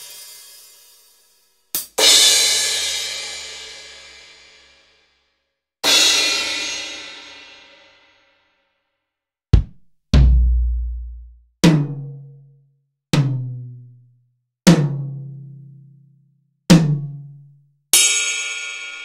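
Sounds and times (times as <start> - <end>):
bright cymbal crash: 0.0 - 1.4
drum hits with ringing low tone: 9.6 - 11.3
short sharp drum hit: 9.6 - 11.3
deep bass drum hit: 9.6 - 11.4.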